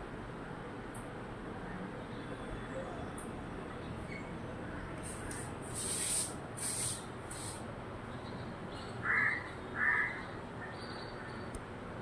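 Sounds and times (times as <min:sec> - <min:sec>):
high hissy rustling: 0:05.0 - 0:07.8.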